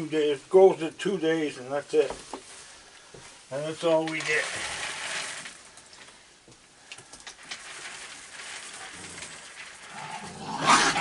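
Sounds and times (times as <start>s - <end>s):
dry kibble pouring into tray: 3.6s - 5.8s, 7.1s - 11.0s.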